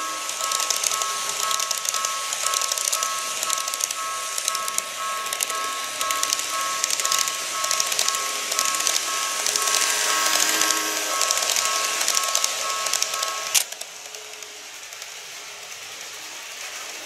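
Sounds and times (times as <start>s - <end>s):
level crossing bell dinging: 0.0s - 13.6s
model trains clattering: 0.0s - 17.0s.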